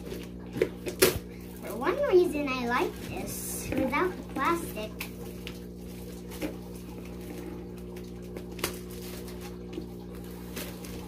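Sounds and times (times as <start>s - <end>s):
plastic shrink wrap crackling: 0.0s - 11.0s.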